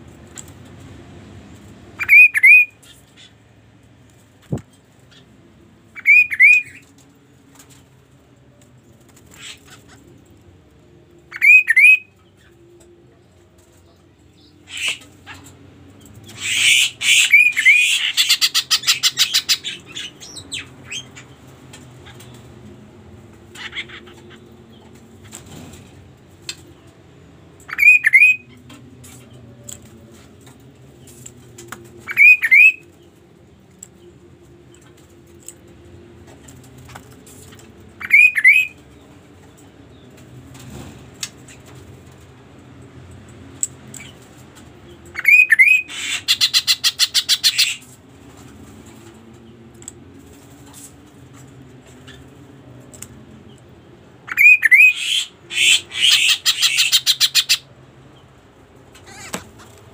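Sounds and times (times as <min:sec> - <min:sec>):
bird whistled notes: 0:02.0 - 0:02.7, 0:06.0 - 0:06.8, 0:11.3 - 0:12.1, 0:27.7 - 0:28.5, 0:32.1 - 0:32.8, 0:38.0 - 0:38.8
harsh bird call: 0:02.0 - 0:02.8, 0:06.0 - 0:06.8, 0:11.3 - 0:12.1, 0:38.0 - 0:38.8, 0:54.3 - 0:57.7.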